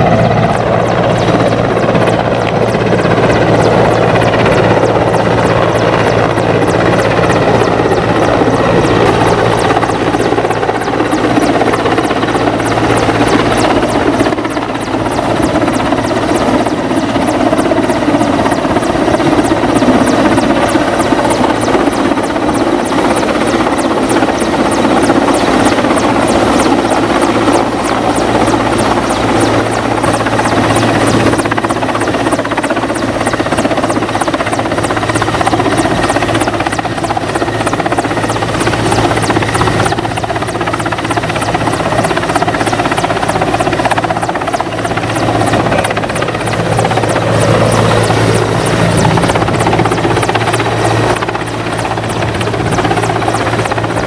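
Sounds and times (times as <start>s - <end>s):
helicopter flying low overhead: 0.0s - 54.0s.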